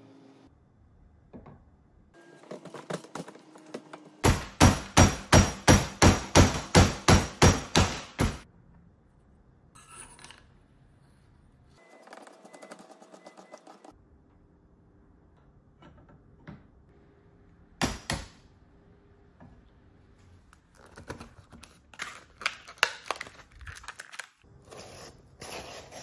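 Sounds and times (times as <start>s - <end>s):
barrel being hammered: 4.2s - 8.4s, 17.8s - 18.4s.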